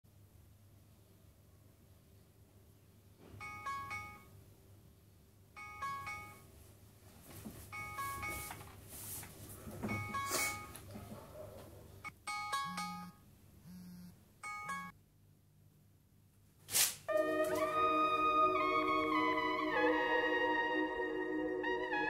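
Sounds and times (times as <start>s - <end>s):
smartphone alarm chiming melody: 3.4s - 4.3s, 5.6s - 6.5s, 7.7s - 8.6s, 9.9s - 10.8s, 12.0s - 15.0s
bedding rustling: 6.6s - 11.7s.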